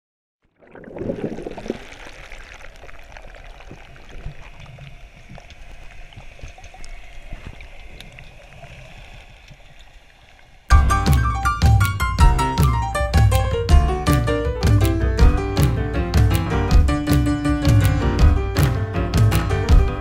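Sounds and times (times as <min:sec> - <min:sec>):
water gurgling and bubbling: 0:00.4 - 0:09.4.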